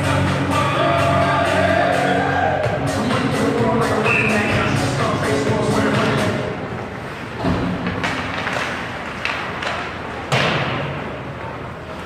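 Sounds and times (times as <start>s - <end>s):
puck and sticks hitting boards: 7.4s - 12.0s.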